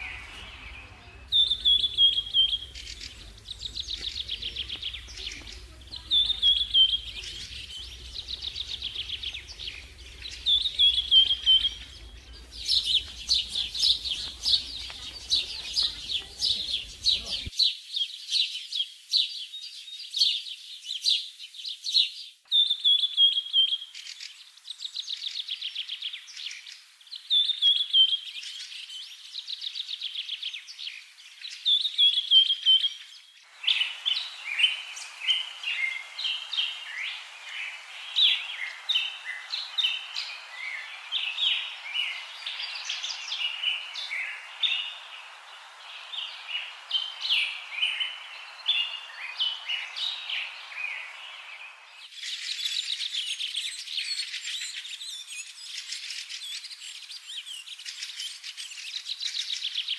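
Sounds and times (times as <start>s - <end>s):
steady hiss: 0.0s - 17.5s, 33.4s - 59.8s
birds chirping and trilling: 0.0s - 59.9s.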